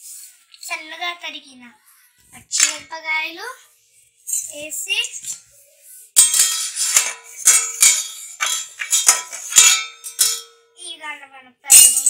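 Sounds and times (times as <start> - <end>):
metal spoon clanking on pot: 6.2 - 10.7, 11.7 - 12.0
pot ringing: 6.2 - 10.8.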